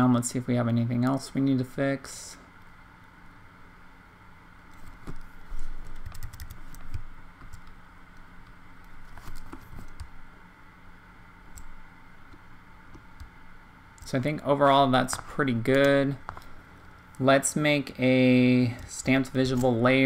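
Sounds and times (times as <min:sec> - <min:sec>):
faint hum: 0:00.0 - 0:20.0
keyboard and mouse clicks: 0:04.8 - 0:07.8.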